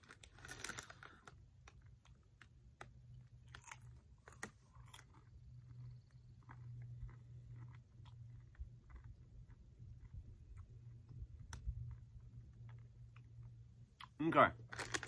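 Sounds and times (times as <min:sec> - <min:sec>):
plastic snack bag crinkling: 0:00.0 - 0:05.7, 0:14.6 - 0:15.0
person chewing crunchy snack: 0:00.0 - 0:15.0.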